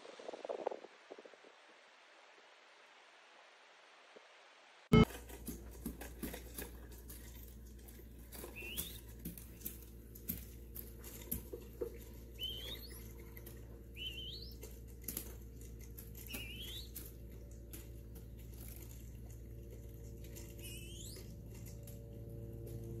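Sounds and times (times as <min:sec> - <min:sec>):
low hum: 0:00.0 - 0:23.0
bird pecking seed on paper: 0:05.0 - 0:23.0
short rising bird chirp: 0:12.4 - 0:13.2, 0:13.9 - 0:14.6, 0:16.3 - 0:17.0, 0:20.6 - 0:21.2.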